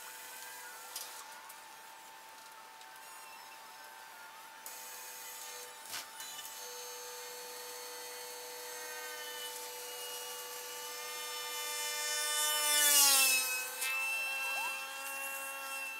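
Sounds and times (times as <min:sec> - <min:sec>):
model plane motor whining: 0:06.6 - 0:15.9.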